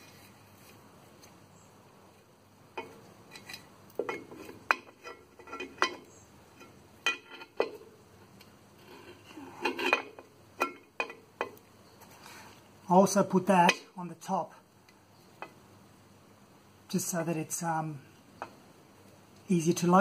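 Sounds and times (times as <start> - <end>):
metal parts clinking and rattling: 2.8 - 7.8.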